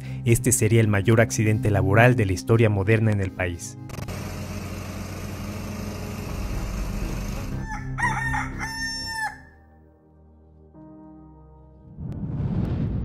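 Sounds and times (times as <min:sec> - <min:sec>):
rooster crowing: 0:07.2 - 0:09.6.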